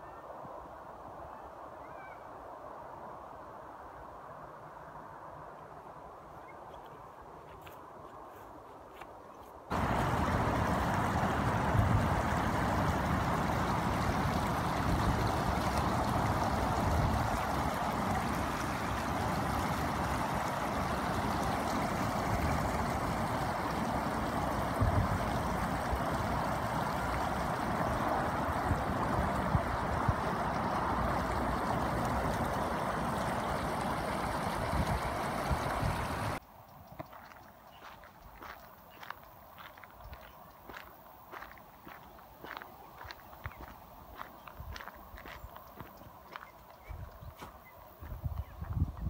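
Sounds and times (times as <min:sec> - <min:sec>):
river water rushing: 0:09.7 - 0:36.4.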